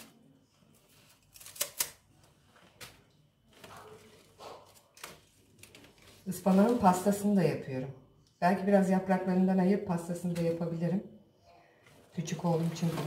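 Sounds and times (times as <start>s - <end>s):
knife cutting stems: 1.3s - 2.0s.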